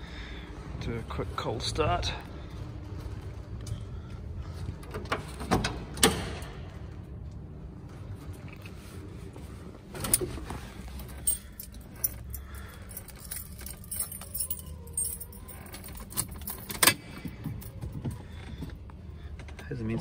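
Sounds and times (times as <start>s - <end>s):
car keys jangling: 10.0s - 18.2s.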